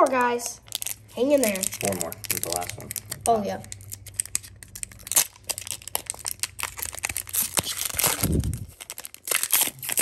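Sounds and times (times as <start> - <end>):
foil wrapper crinkling and tearing: 0.2 - 10.0.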